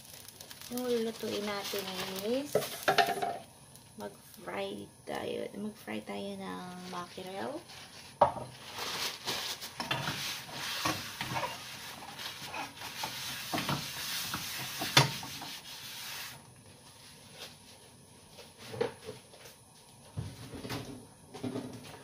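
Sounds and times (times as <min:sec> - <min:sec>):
rubbing and rustling: 0:06.6 - 0:17.8.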